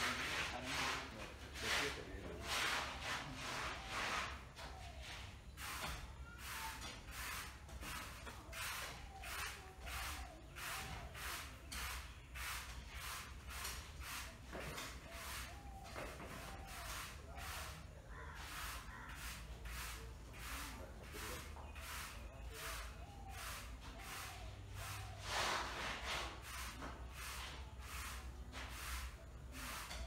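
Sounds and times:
broom sweeping concrete floor: 0.0s - 30.0s.

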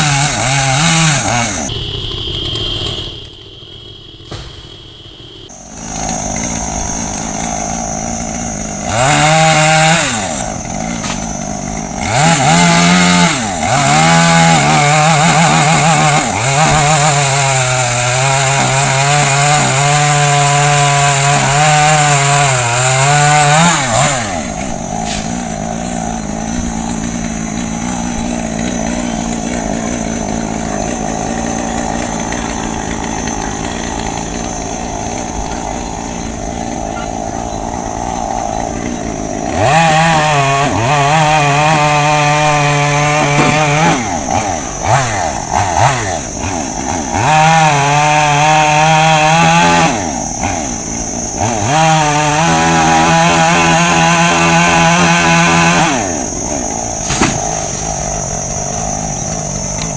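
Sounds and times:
chainsaw cutting wood: 0.0s - 1.7s, 5.5s - 59.9s
chainsaw idling and revving: 0.0s - 1.7s, 5.5s - 59.9s.

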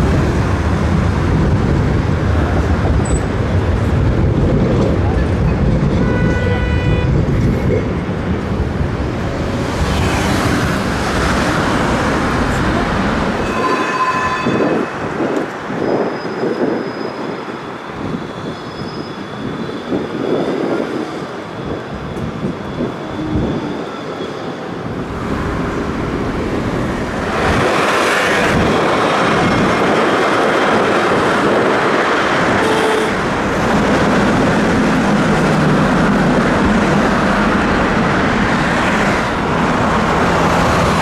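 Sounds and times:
rumble of tram wheels and traffic: 0.0s - 41.0s
high tram wheel squeals: 13.4s - 25.0s.

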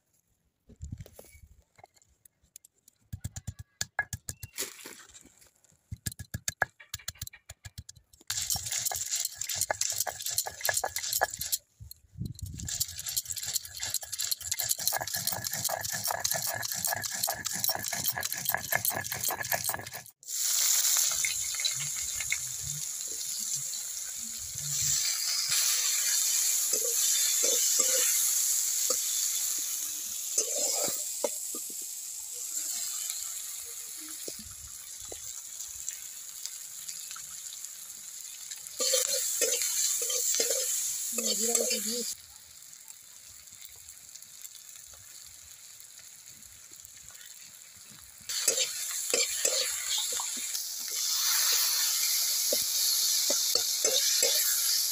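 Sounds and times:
spatula scraping and knocking wok: 6.0s - 11.6s, 12.5s - 20.2s, 24.6s - 31.9s, 38.8s - 42.2s, 48.3s - 54.9s
stone scraping on grinding slab: 12.8s - 20.1s
onions sizzling in oil: 20.1s - 54.9s.

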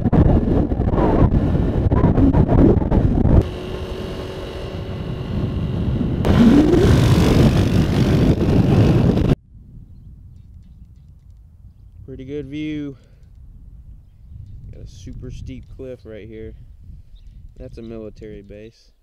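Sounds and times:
wind buffeting microphone: 0.0s - 18.5s
moped engine running: 3.4s - 9.2s.

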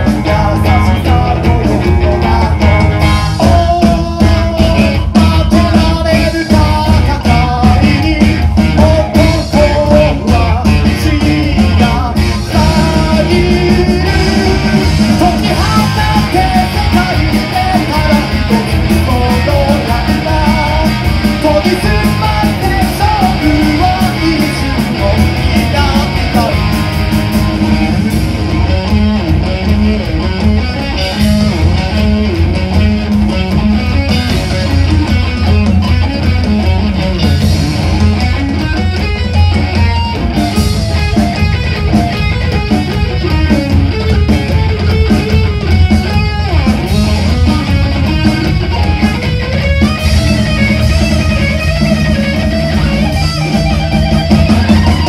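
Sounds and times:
person singing: 0.0s - 26.8s
live rock band playing: 0.0s - 55.0s.

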